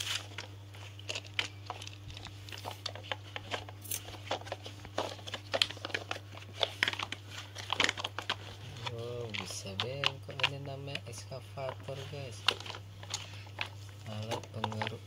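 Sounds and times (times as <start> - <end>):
steady low hum: 0.0 - 15.0
plastic toy trucks clicking: 12.4 - 15.0.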